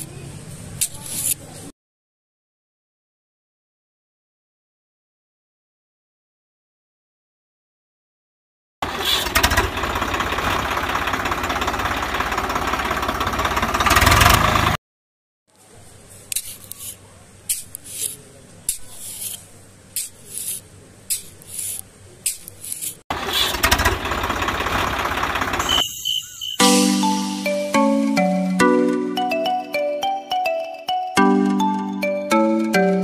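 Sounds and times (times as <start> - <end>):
chime-like music: 26.6 - 33.0.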